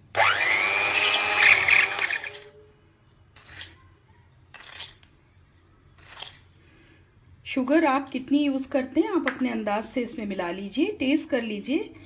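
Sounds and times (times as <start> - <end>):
electric hand mixer whining: 0.1 - 2.5.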